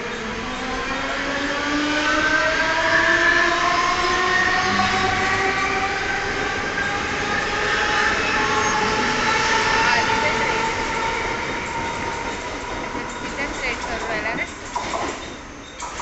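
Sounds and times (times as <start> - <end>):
train traction motors whining: 0.0 - 16.0
train wheels running noise: 3.4 - 16.0.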